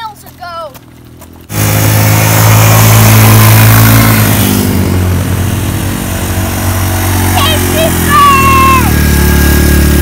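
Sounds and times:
atv engine running: 0.0 - 10.0.

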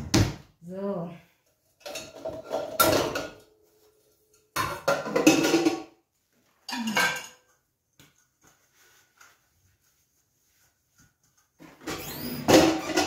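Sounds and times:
pots and kitchenware clattering: 1.8 - 3.6, 4.3 - 6.0, 6.6 - 7.7, 11.7 - 13.0.

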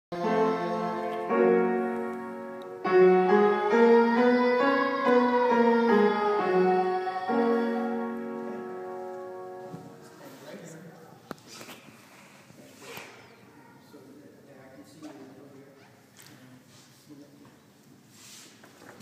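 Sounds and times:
piano playing sustained chords: 0.1 - 10.1.

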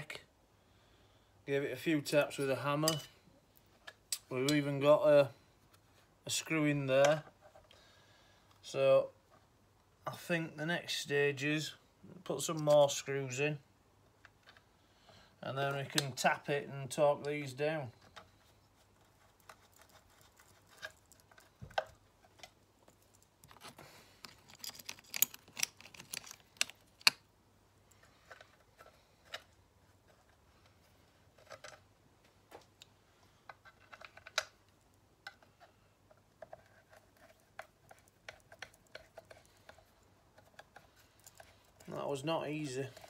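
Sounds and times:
metallic clicks of screws: 24.2 - 27.2.

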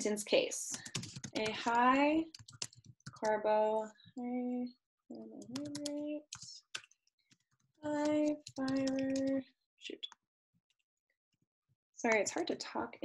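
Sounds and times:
keyboard typing clicks: 0.7 - 1.6, 5.4 - 6.9, 7.9 - 9.4
woman speaking slowly: 1.4 - 2.2, 3.2 - 6.6, 7.8 - 9.4.

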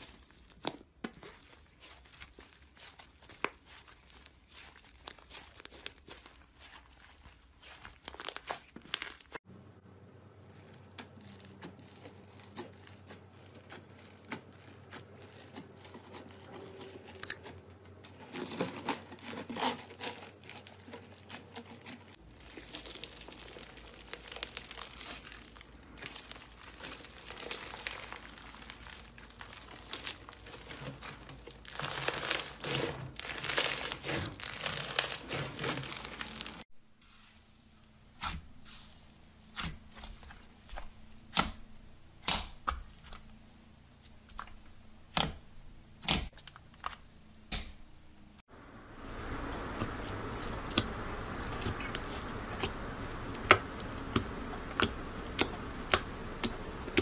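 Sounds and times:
slime crackling and popping: 0.0 - 9.4, 10.4 - 17.4, 18.4 - 36.6, 49.0 - 57.0.

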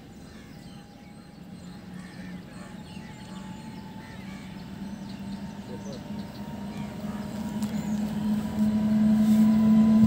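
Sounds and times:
birds chirping: 0.0 - 10.0
locomotive low hum and whine: 0.0 - 10.0.

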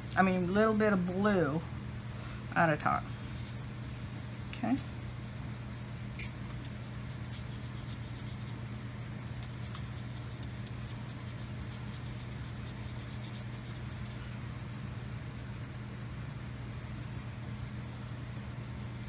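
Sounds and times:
steady low hum: 0.0 - 19.0
paintbrush scrubbing on paper: 5.7 - 8.7, 9.3 - 14.5.

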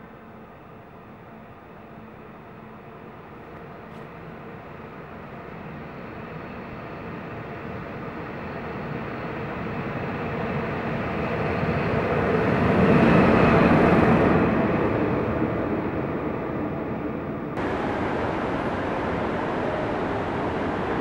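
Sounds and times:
electric locomotive rumbling past: 11.2 - 21.0.

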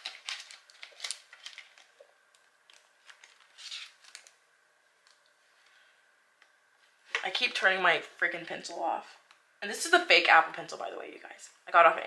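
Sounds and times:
paper card rustling: 0.0 - 4.4.

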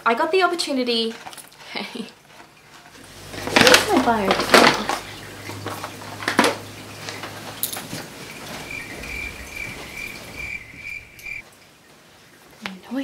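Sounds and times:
rummaging through boxes and bottles: 1.0 - 11.4
pulsing high chirp: 8.3 - 11.4.

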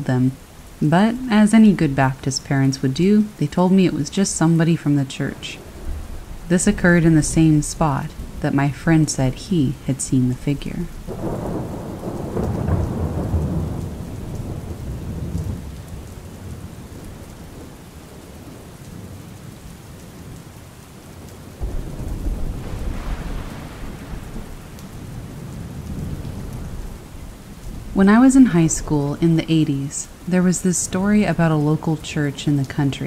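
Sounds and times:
thunder rumbling: 0.0 - 19.6, 21.5 - 33.0
steady rain: 0.0 - 33.0.

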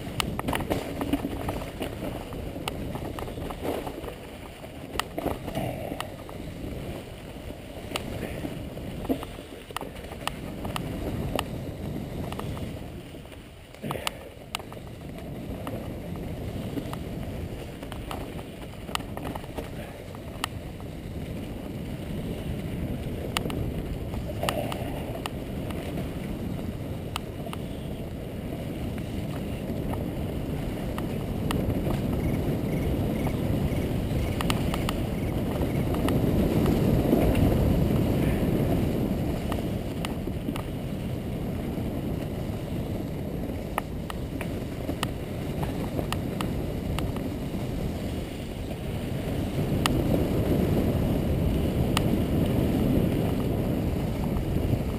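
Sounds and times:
bike ticks and rattles: 0.0 - 54.9
tyres rolling over leaves: 0.0 - 54.9
wind buffeting microphone: 0.0 - 54.9.

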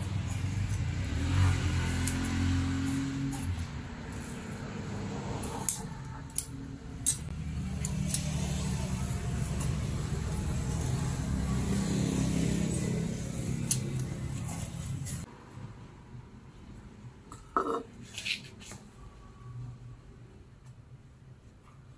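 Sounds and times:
low engine-like hum: 0.0 - 15.3.

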